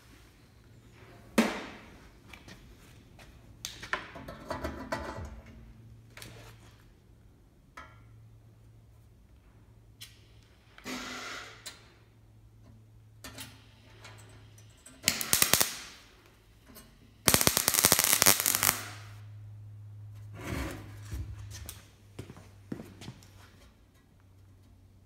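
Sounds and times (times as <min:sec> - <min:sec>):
electric welder crackling: 0:15.0 - 0:16.1, 0:17.3 - 0:19.2.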